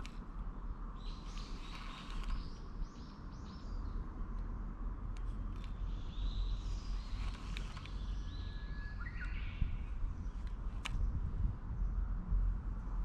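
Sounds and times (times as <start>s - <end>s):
low steady rumble: 0.0s - 13.0s
birds singing: 0.9s - 4.4s, 5.6s - 12.1s.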